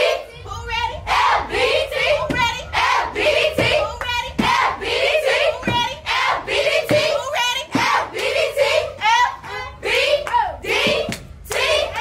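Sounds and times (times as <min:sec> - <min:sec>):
young voices chanting: 0:00.0 - 0:12.0
sharp claps: 0:10.2 - 0:11.8.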